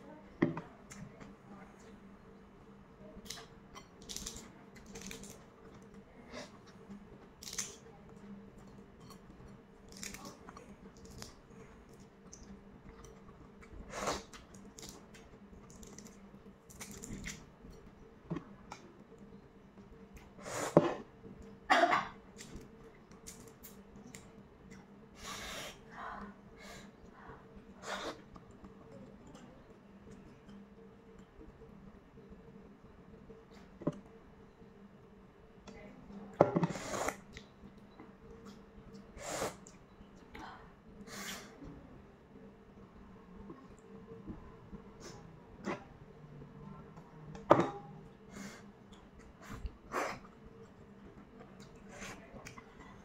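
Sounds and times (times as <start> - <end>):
eggshell crackling as peeled: 3.3 - 5.4, 9.9 - 11.4.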